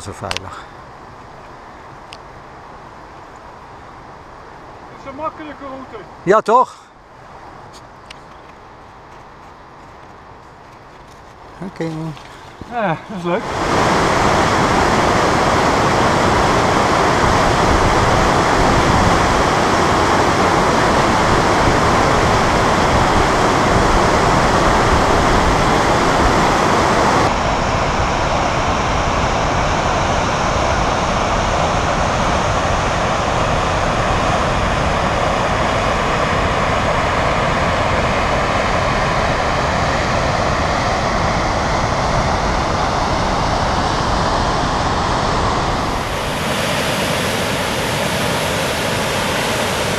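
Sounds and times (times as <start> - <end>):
waterfall rushing: 12.6 - 49.9.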